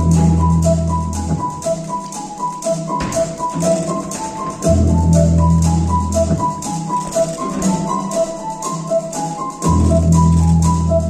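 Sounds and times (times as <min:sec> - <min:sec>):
long deep bass notes: 0:00.0 - 0:01.4, 0:03.5 - 0:06.4, 0:09.6 - 0:11.0.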